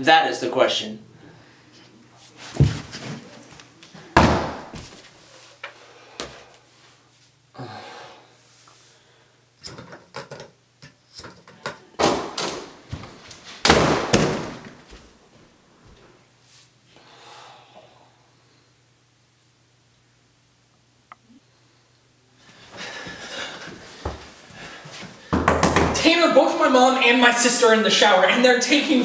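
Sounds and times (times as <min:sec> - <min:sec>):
knocks and thumps: 0:11.6 - 0:14.8, 0:25.3 - 0:26.0.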